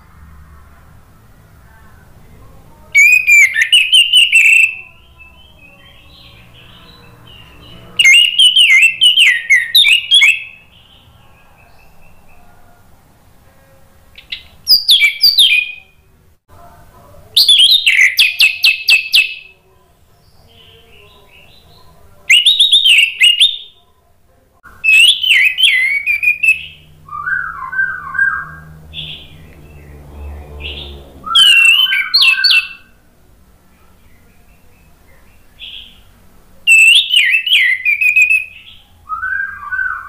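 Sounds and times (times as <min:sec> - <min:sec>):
thrush singing whistled notes: 0:03.0 - 0:12.4, 0:14.2 - 0:16.0, 0:17.4 - 0:19.5, 0:22.3 - 0:23.8, 0:24.8 - 0:29.9, 0:30.6 - 0:33.0, 0:36.7 - 0:40.0.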